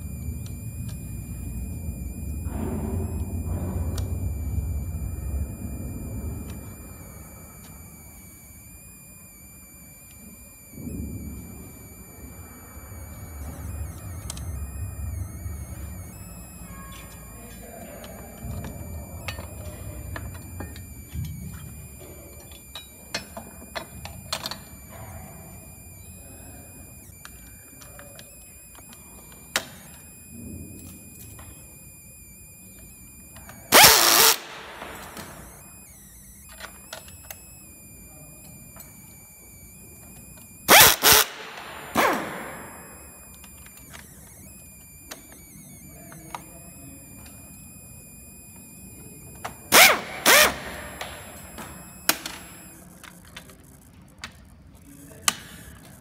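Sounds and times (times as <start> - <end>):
power screwdriver driving screws: 33.7 - 35.3, 40.4 - 42.3, 49.7 - 52.4.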